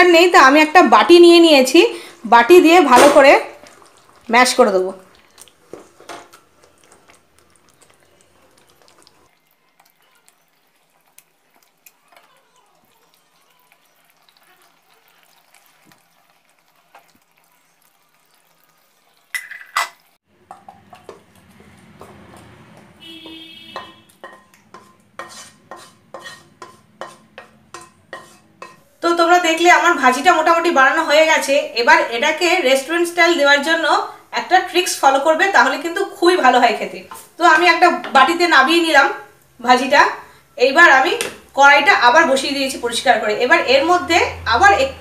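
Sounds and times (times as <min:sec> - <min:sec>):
squishing of mashing potatoes: 0:02.5 - 0:19.4, 0:20.0 - 0:23.0, 0:23.8 - 0:29.0
knocks and scrapes in pan: 0:19.4 - 0:28.8.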